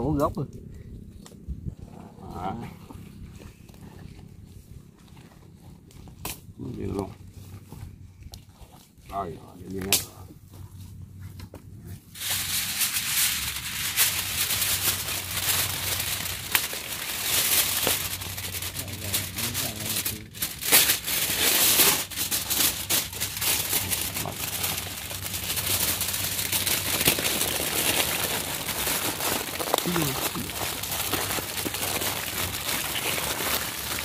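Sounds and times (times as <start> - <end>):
fire popping: 12.1 - 34.0
food crackling over open fire: 12.1 - 34.0.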